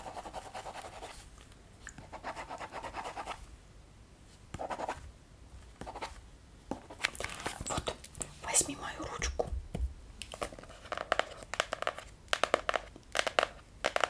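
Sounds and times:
pen scratching on paper: 0:00.0 - 0:01.2, 0:02.0 - 0:03.4, 0:04.6 - 0:05.0.

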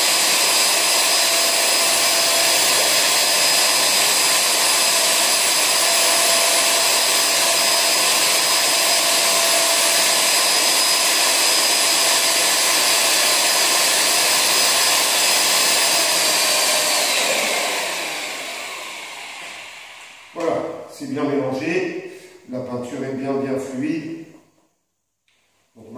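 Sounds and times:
electric drill mixing paint: 0:00.0 - 0:20.4.

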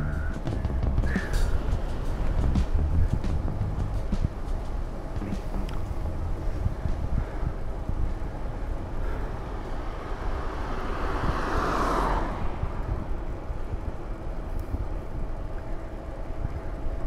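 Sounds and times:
vehicle passing by: 0:00.0 - 0:14.5
wind rumbling on microphone: 0:00.0 - 0:17.0.

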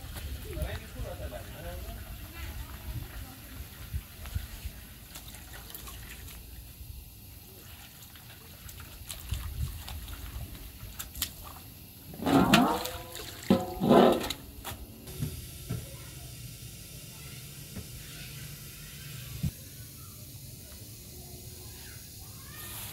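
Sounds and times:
clothes swished in water basin: 0:07.5 - 0:14.4
water splashing: 0:07.6 - 0:14.6.

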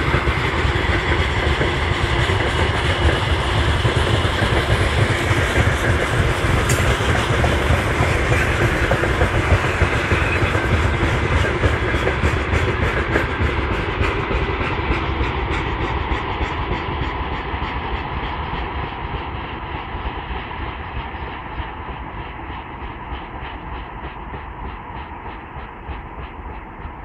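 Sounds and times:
wheels clacking over rail joints: 0:00.0 - 0:18.0
train rumble: 0:00.0 - 0:27.0.

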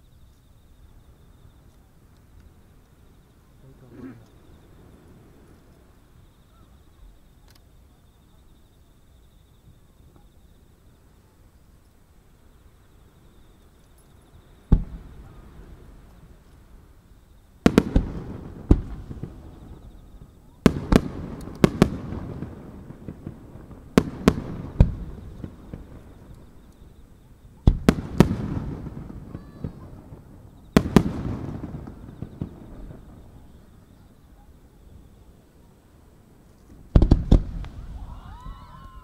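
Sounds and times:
firework shells bursting: 0:17.6 - 0:33.3, 0:36.4 - 0:39.0.

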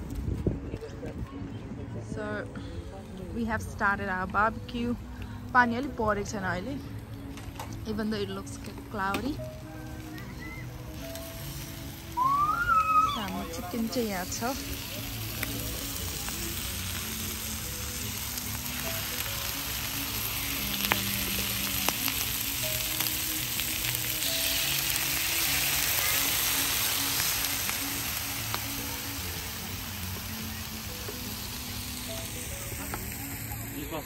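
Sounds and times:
chicken sizzling on hotplate: 0:07.4 - 0:34.0.

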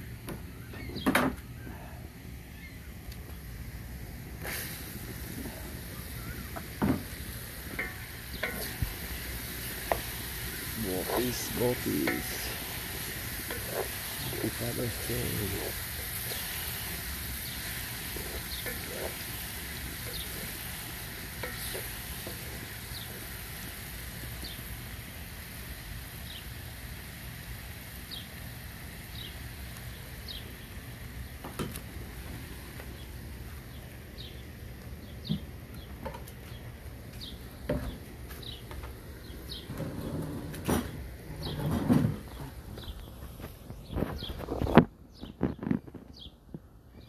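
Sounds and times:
food sizzling in a wok: 0:03.6 - 0:34.6
wooden spatula stirring: 0:11.1 - 0:16.8.

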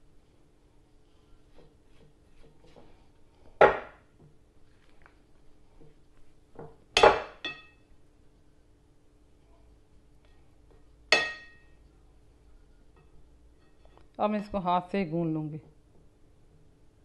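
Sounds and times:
spatula knocking glass bowl: 0:11.1 - 0:11.7.

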